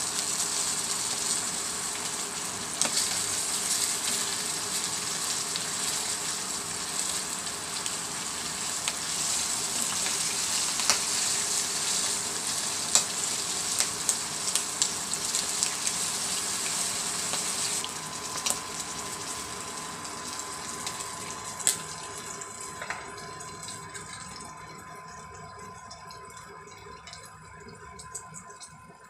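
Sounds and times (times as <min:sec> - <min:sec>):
faint steady whine: 0:00.0 - 0:29.0
hot oil sizzling: 0:00.0 - 0:29.0
sauce bubbling: 0:00.2 - 0:29.0.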